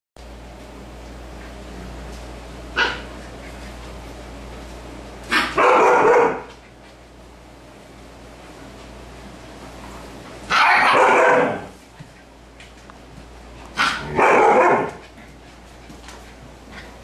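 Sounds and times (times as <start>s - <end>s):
dog barking: 2.8s - 3.1s, 5.3s - 6.5s, 10.5s - 11.7s, 13.8s - 15.0s.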